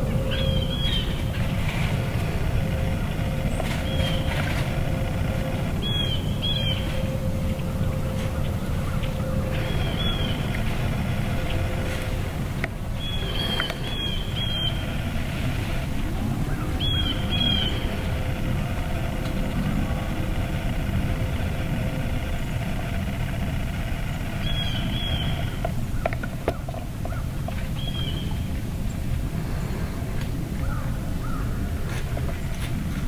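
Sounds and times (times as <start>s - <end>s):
low rumble: 0.0s - 33.0s
small bird chirping: 3.4s - 4.3s, 5.4s - 7.1s, 8.0s - 10.6s, 13.0s - 15.0s, 16.5s - 18.2s, 24.3s - 25.6s.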